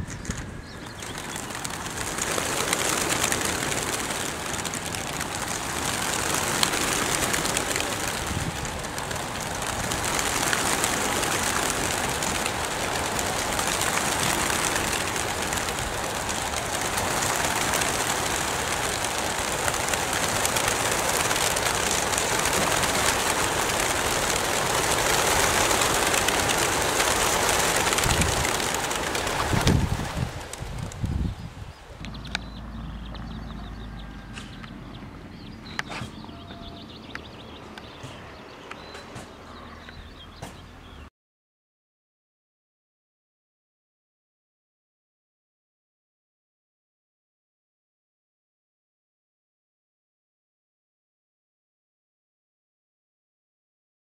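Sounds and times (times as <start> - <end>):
pigeon wings flapping: 0.0 - 31.4.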